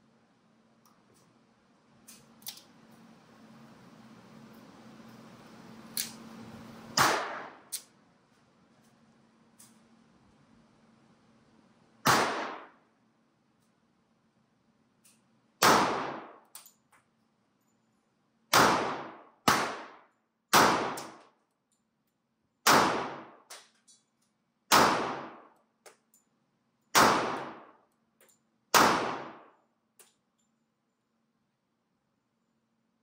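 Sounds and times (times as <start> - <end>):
pistol shots ringing out: 7.0 - 7.7, 12.0 - 12.8, 15.6 - 16.4, 18.5 - 21.2, 22.6 - 23.6, 24.7 - 25.5, 26.9 - 27.8, 28.7 - 29.6.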